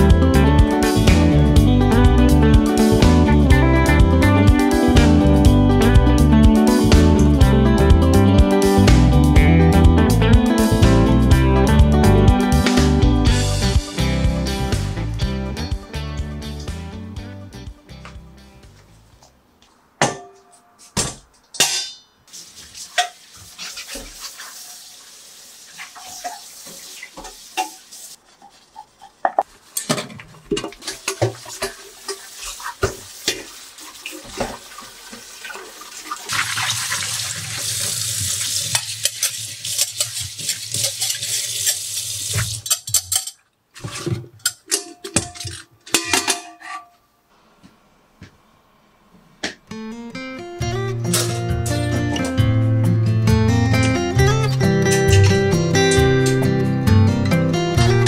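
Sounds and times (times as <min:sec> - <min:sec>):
tap water running and splashing: 0:22.3 - 0:28.2, 0:29.8 - 0:42.9.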